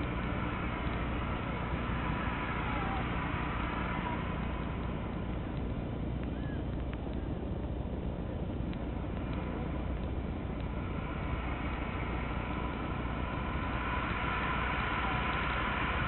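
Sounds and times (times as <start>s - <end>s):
faint tones: 0.0s - 16.0s
train low rumble: 0.0s - 16.0s
train rushing sound: 10.9s - 16.0s.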